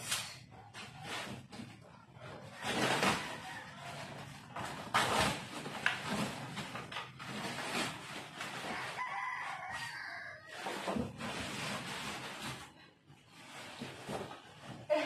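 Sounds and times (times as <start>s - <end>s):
cardboard box scraping and rustling: 4.6s - 15.0s.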